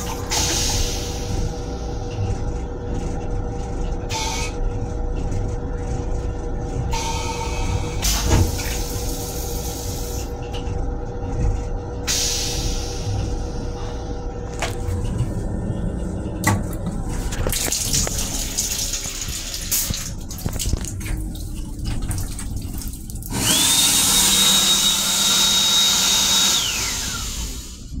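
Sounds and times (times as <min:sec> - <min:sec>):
faucet water running into sink: 0:17.6 - 0:25.3
hand dryer blowing and whining: 0:23.3 - 0:27.8.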